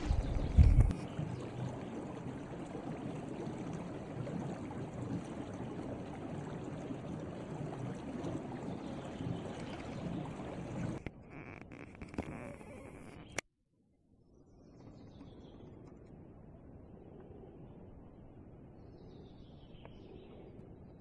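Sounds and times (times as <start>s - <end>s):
creek water flowing: 0.0s - 13.4s.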